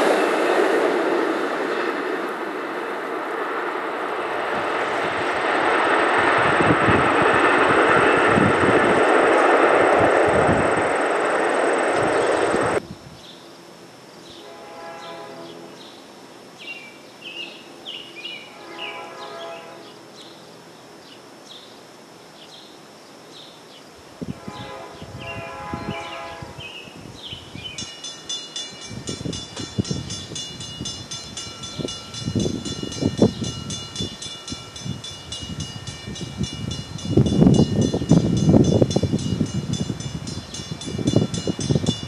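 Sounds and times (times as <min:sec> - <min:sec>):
distant train horn blasts: 0:14.2 - 0:16.0, 0:18.2 - 0:20.1, 0:24.2 - 0:26.8
rapid steady ringing: 0:27.7 - 0:42.0.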